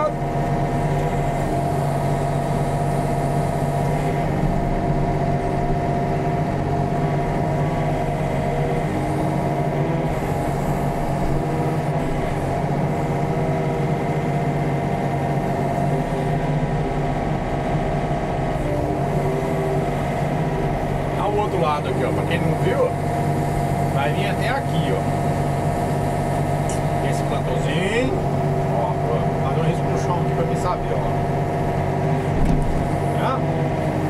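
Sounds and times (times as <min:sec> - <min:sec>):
excavator diesel engine running: 0:00.0 - 0:34.0
hydraulic boom digging: 0:18.3 - 0:34.0.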